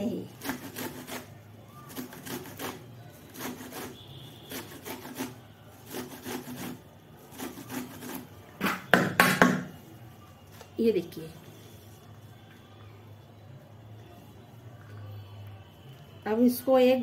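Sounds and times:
corn grated on metal grater: 0.0 - 8.3.

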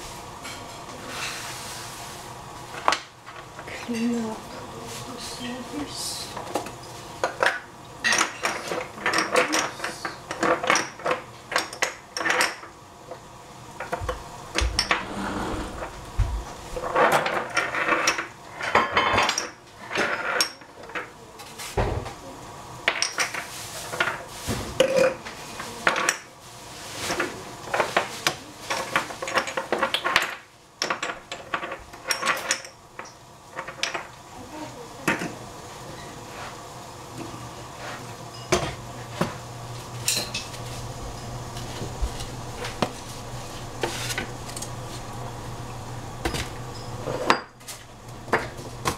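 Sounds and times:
cutlery clattering against pots: 7.2 - 12.6.

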